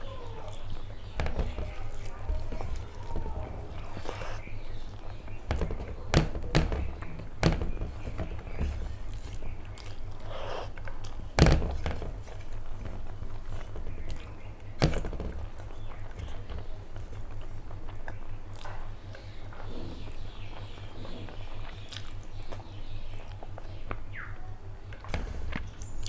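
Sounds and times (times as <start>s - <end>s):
chewing: 0.0s - 5.4s, 8.8s - 11.3s, 15.4s - 24.0s
fingers working rice on plate: 0.0s - 22.1s
low steady hum: 0.0s - 26.0s
sharp knocks: 0.7s - 4.1s, 5.0s - 9.7s, 11.3s - 16.8s.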